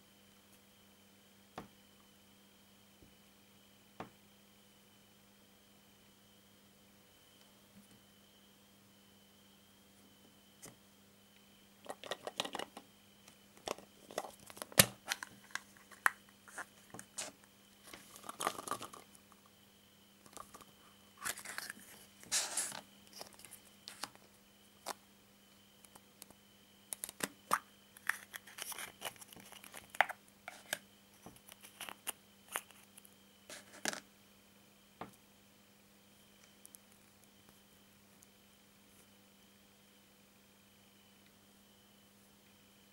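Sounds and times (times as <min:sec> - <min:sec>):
plastic wrapper crinkling: 0:17.9 - 0:19.1, 0:21.2 - 0:24.2, 0:27.0 - 0:33.8.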